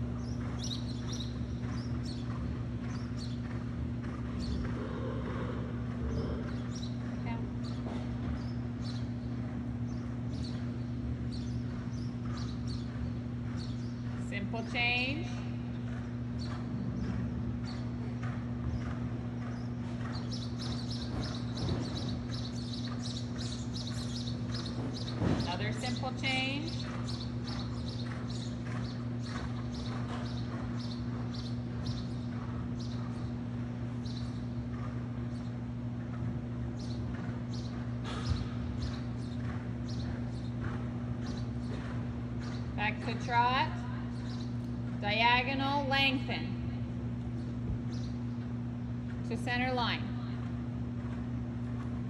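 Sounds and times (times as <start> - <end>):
horse cantering on sand: 0.0 - 52.0
steady low hum: 0.0 - 52.0.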